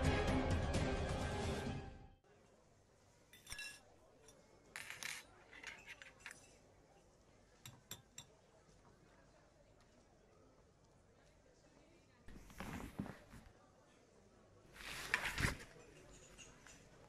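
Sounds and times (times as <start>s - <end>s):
forks clinking against plates: 3.4s - 6.6s, 15.8s - 17.0s.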